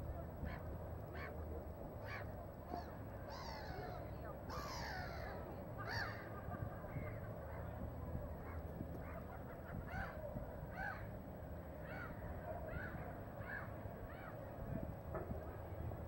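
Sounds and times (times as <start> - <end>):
bird calling: 2.0 - 6.4, 8.4 - 11.2, 11.8 - 14.4.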